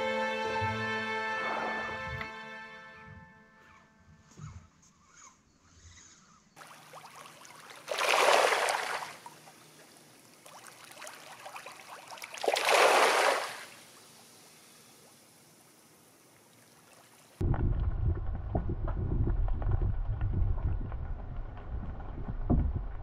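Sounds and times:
fish splashing at water surface: 6.6 - 13.9.

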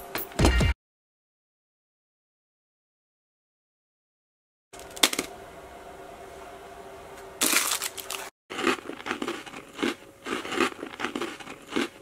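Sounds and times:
plastic wrapper crinkling: 7.4 - 8.3
rice cracker crunching: 7.4 - 12.0.

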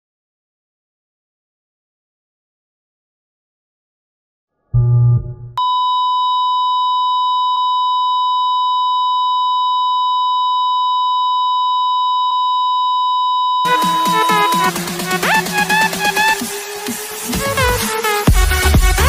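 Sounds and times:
heart monitor flatline beep: 5.6 - 14.8
electronic dance music: 13.6 - 19.0.

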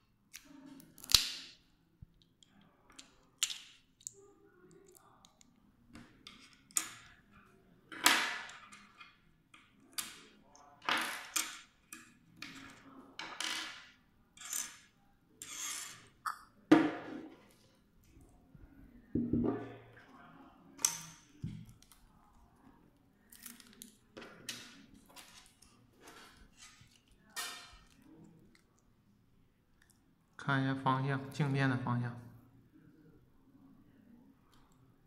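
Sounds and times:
parts set down on a table: 16.7 - 17.5, 19.2 - 19.8.

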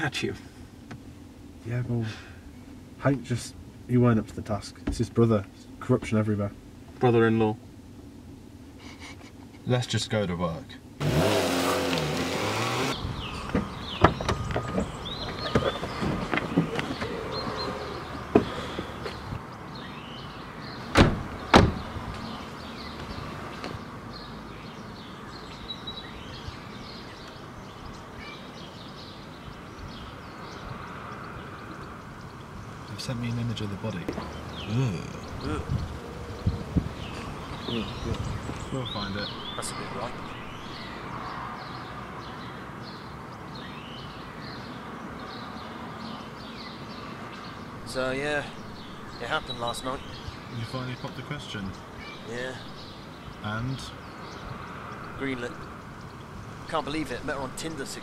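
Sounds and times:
outdoor background noise: 0.0 - 58.0
small birds chirping: 8.5 - 58.0
car doors slamming: 13.2 - 19.4, 20.8 - 22.0.

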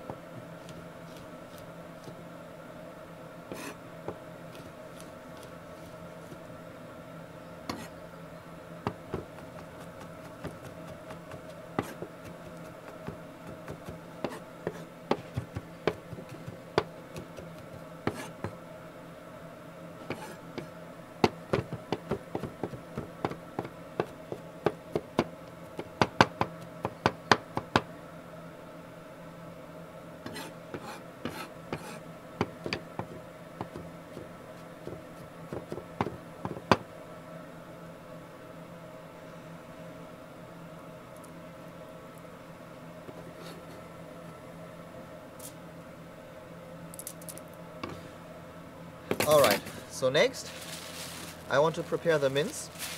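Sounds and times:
steady low hum: 0.0 - 52.9
knife chopping on wooden board: 8.9 - 18.6, 20.1 - 27.9, 30.3 - 36.8.

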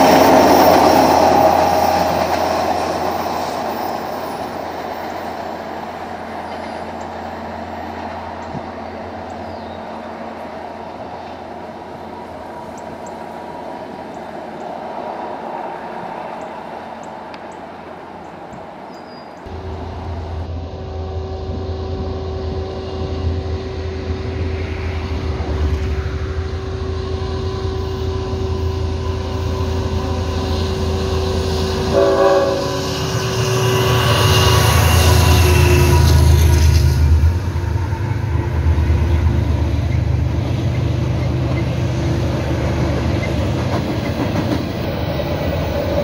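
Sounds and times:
diesel train rumble: 0.0 - 46.0
passenger train rumbling: 0.0 - 46.0
train air horn chord: 19.5 - 24.6, 25.8 - 38.0.

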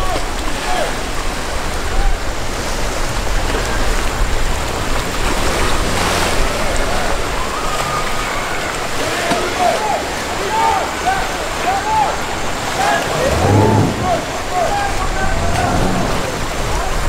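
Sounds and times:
rough surf churning: 0.0 - 17.0
wind buffeting microphone: 13.0 - 17.0.

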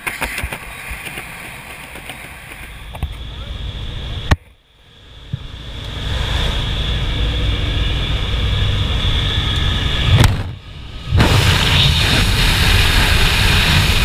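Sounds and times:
airplane engine: 0.0 - 14.0
rushing air: 0.0 - 14.0.

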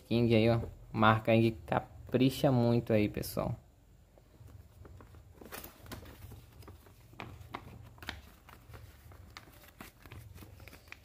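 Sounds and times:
paper rustling and crinkling: 4.4 - 11.0.

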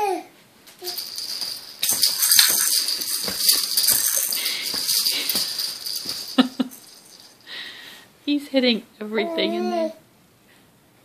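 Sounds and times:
rattle toys rattling and jingling: 0.8 - 7.7.

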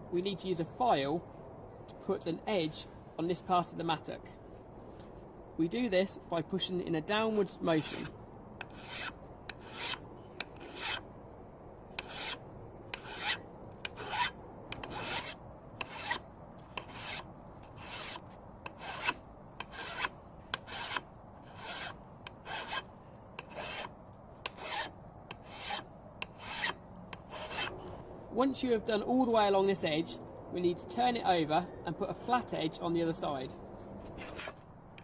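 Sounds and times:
file rasping on steel: 7.4 - 11.0, 12.0 - 27.7, 34.2 - 34.6.

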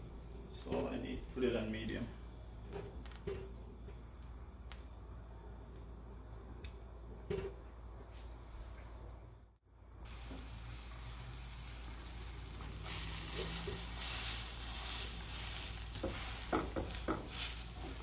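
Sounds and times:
sandwiches sizzling in frying pan: 10.0 - 18.0
spatula pressing food: 12.8 - 18.0.

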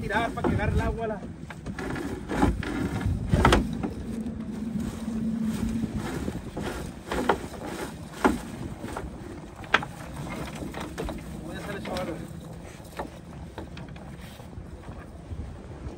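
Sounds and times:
wind on microphone: 0.0 - 15.9
water washing: 2.8 - 14.6.

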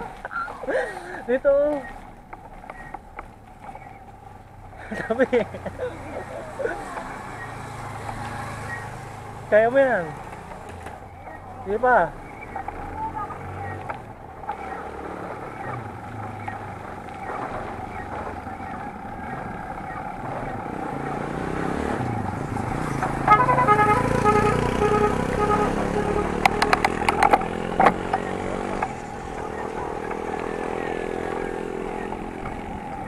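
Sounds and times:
road and wind noise: 0.0 - 33.0
motorcycle engine passing: 3.6 - 33.0
short horn beeps: 23.3 - 26.8
sharp clicks clattering: 26.4 - 29.0.

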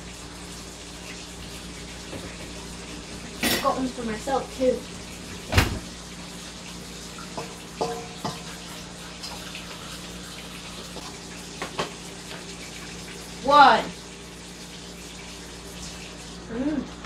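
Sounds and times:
tap running into sink: 2.0 - 2.6, 10.9 - 12.5
dishes and utensils clinking: 3.4 - 3.8, 7.4 - 8.5.

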